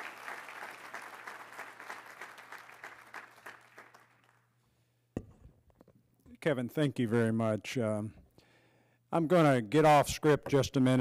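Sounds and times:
audience applauding: 0.0s - 4.4s.

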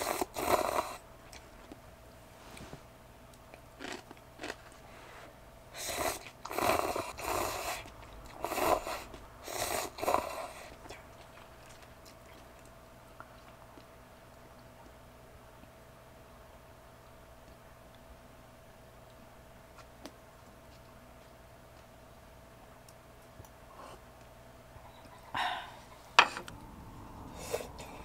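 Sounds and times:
chewing: 3.3s - 4.8s, 5.9s - 15.0s.

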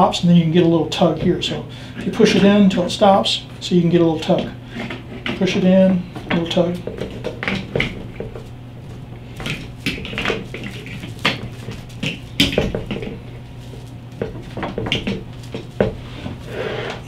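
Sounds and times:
clicks knocks and rattles of wiring: 4.3s - 16.0s.

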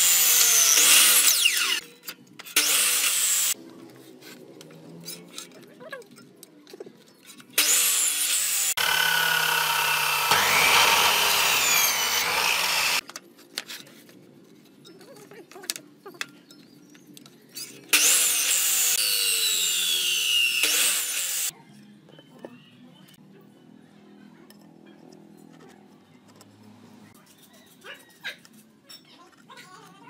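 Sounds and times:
miter saw cutting wood: 0.0s - 1.8s, 2.6s - 3.6s, 7.6s - 13.0s, 17.9s - 21.5s.

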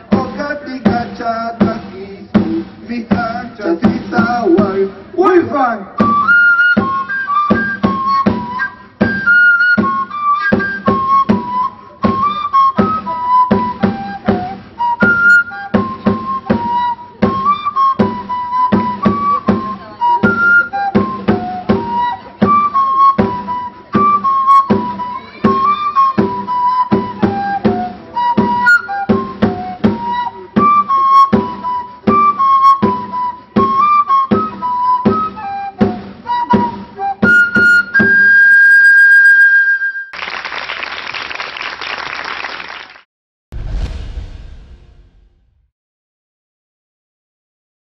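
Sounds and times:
large drum beat: 0.0s - 7.0s, 43.5s - 45.7s
cane flute melody: 3.6s - 40.2s.

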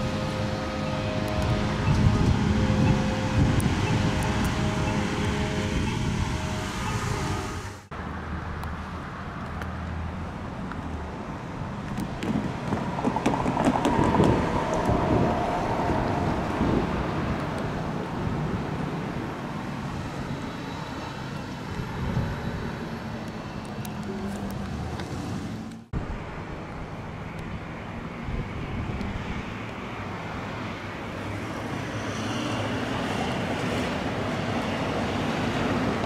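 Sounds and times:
wind buffeting microphone: 0.0s - 7.8s, 11.5s - 32.0s
vehicle passing: 0.0s - 10.3s, 11.7s - 25.9s
street traffic: 0.0s - 36.0s.

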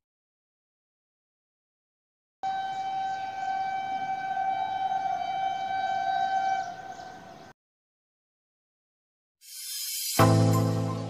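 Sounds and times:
train horn: 2.4s - 7.2s.

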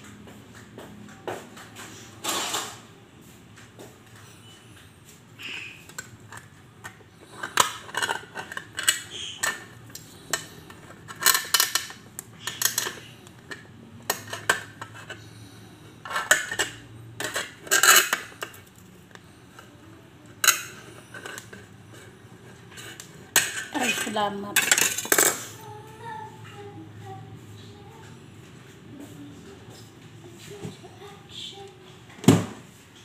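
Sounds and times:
knife clicking and scraping tin can: 7.4s - 15.2s, 16.1s - 18.6s.

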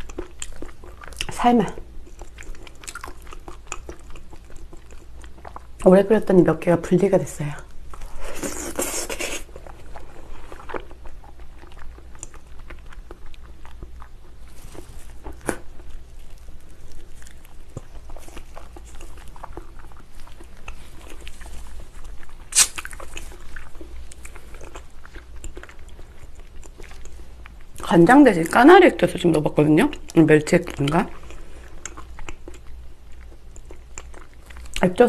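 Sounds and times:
wet chewing and sucking: 0.0s - 5.9s, 7.7s - 27.9s, 29.9s - 34.9s
sharp lip smacks: 22.5s - 23.1s.

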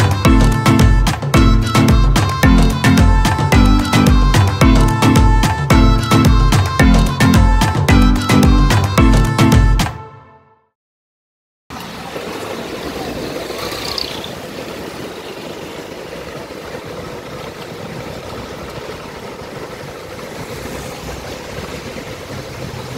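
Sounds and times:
car engines passing: 11.8s - 22.9s
tyres hissing on wet road: 18.3s - 22.9s.

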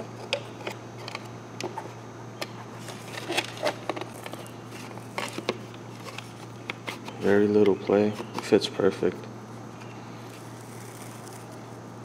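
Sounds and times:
plastic clicks and scraping: 0.2s - 8.6s.

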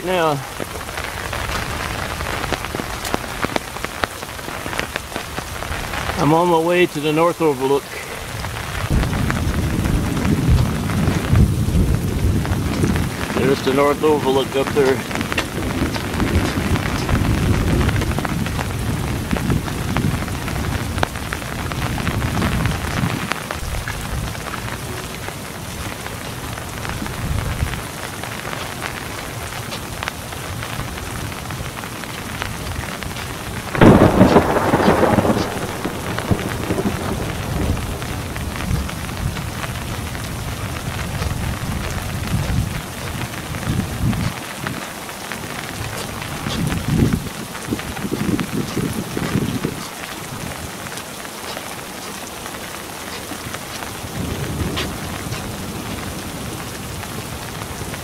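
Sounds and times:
rain on wet pavement: 0.0s - 58.0s
distant thunder rumble: 7.6s - 50.9s, 53.4s - 58.0s.

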